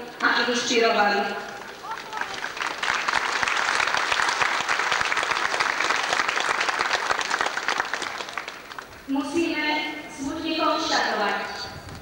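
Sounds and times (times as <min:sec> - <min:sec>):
crowd applauding: 0:01.4 - 0:09.1.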